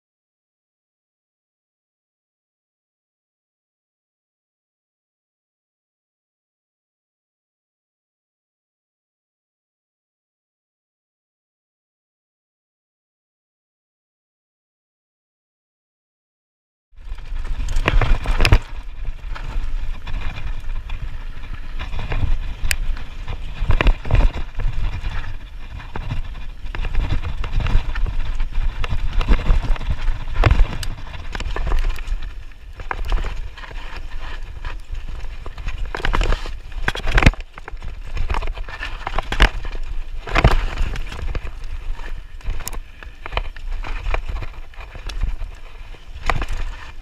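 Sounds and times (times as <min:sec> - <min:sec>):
bike tyres rolling over dirt: 0:17.0 - 0:47.0
wind rumble on microphone: 0:17.0 - 0:47.0.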